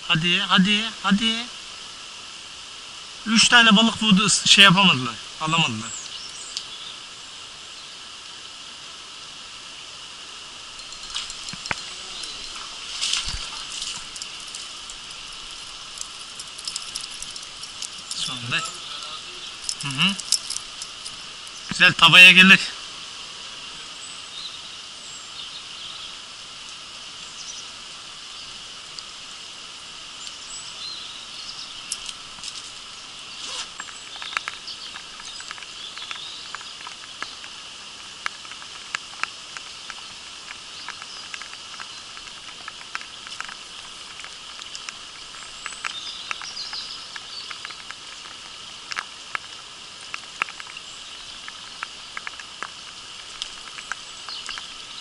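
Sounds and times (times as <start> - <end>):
stream hissing: 0.0 - 55.0
raindrops tapping on camera: 10.7 - 22.7, 31.7 - 55.0.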